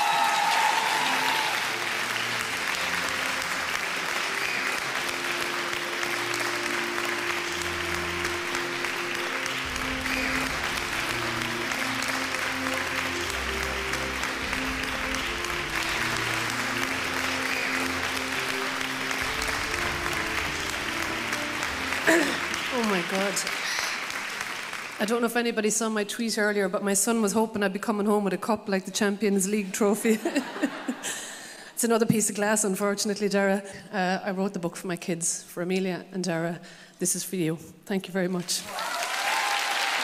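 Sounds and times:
audience applauding: 0:00.0 - 0:25.2, 0:38.4 - 0:40.0
instrumental music: 0:00.4 - 0:25.0.

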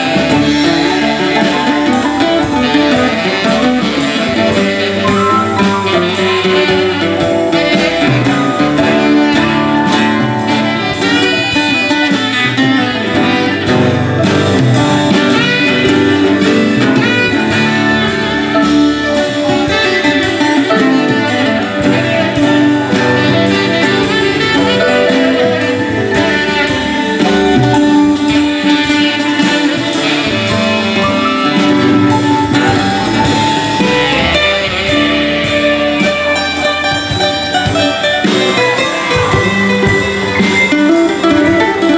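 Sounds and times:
bass guitar: 0:00.0 - 0:41.9
guitar: 0:00.0 - 0:41.9
keyboard: 0:00.0 - 0:41.9
saxophone: 0:00.0 - 0:41.9.

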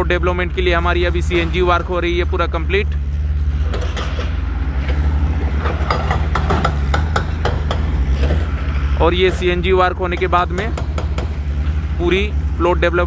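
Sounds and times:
low construction rumble: 0:00.0 - 0:13.0
sharp knocks: 0:03.6 - 0:08.6, 0:10.0 - 0:11.5.

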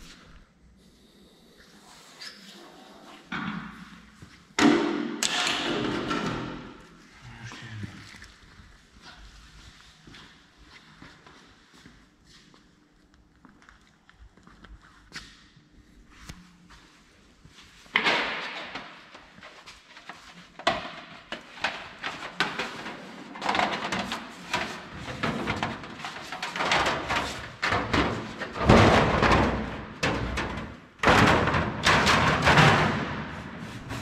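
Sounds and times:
sheet metal machine clanks and thuds: 0:04.6 - 0:06.8, 0:21.6 - 0:33.6.

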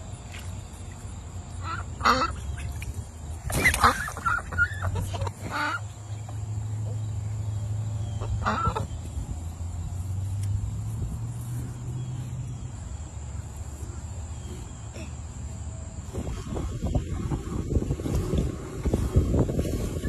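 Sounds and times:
duck quacking: 0:01.6 - 0:02.6, 0:03.6 - 0:05.8, 0:08.2 - 0:08.9.

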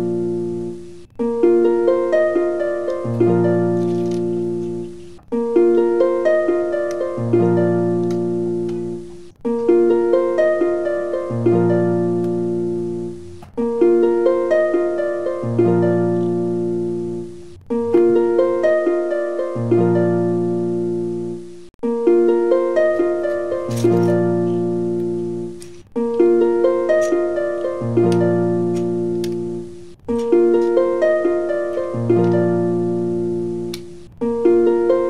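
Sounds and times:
plucked string tune: 0:00.0 - 0:35.0.

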